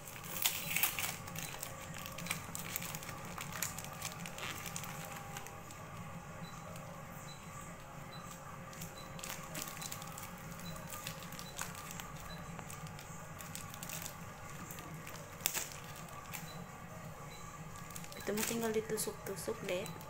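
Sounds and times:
scissors cutting wrapping: 0.0s - 5.5s, 8.8s - 16.5s
steady low hum: 0.0s - 20.0s.

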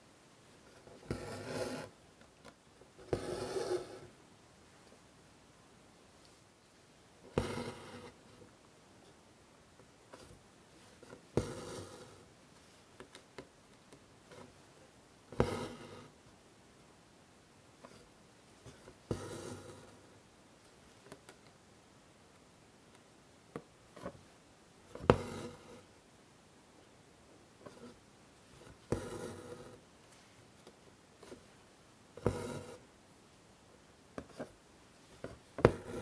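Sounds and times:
thread rasping through cloth: 0.7s - 1.9s, 3.0s - 4.1s, 7.3s - 8.2s, 11.0s - 12.2s, 15.3s - 16.1s, 24.9s - 25.8s, 32.2s - 32.8s, 35.2s - 36.0s.

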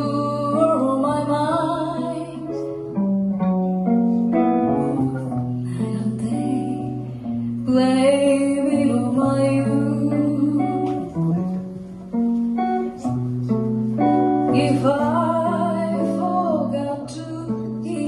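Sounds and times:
woman singing: 0.0s - 2.9s, 4.7s - 11.3s, 14.5s - 18.0s
archtop guitar: 0.0s - 18.0s.

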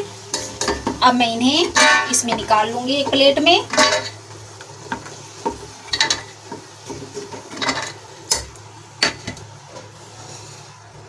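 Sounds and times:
spoon scraping a frying pan: 1.6s - 4.2s, 4.9s - 10.6s.

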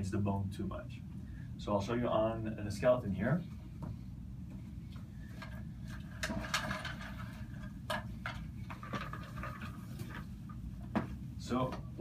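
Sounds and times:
low room hum: 0.0s - 12.0s
stool being pulled: 5.4s - 10.3s
skeleton model rattling: 5.4s - 10.4s.

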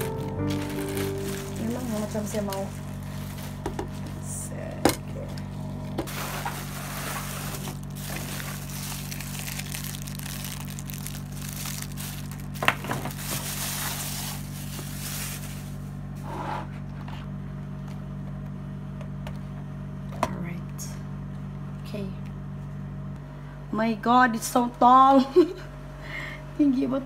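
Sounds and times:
plastic packaging crinkling: 0.0s - 4.3s, 6.1s - 15.8s
steady low hum: 0.0s - 27.0s.

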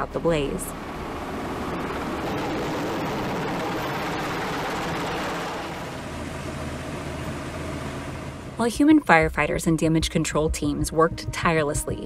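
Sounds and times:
fire truck engines running: 0.0s - 8.6s.

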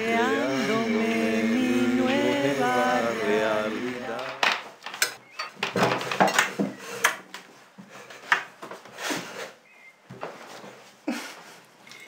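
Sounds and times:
dishes and cutlery clattering: 4.2s - 7.2s.

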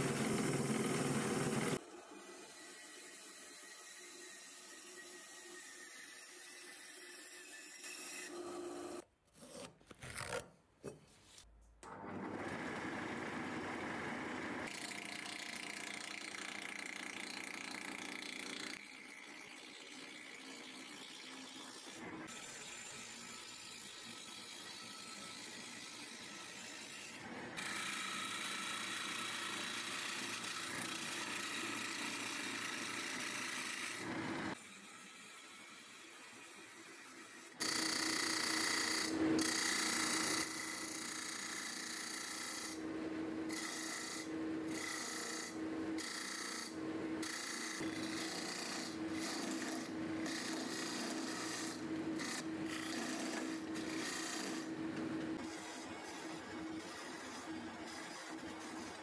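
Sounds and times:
turning tool shaving wood: 0.0s - 1.8s, 37.1s - 59.0s
wood lathe spinning: 0.0s - 1.8s, 12.1s - 26.9s, 27.6s - 59.0s
band saw cutting wood: 0.0s - 9.7s, 14.6s - 59.0s.

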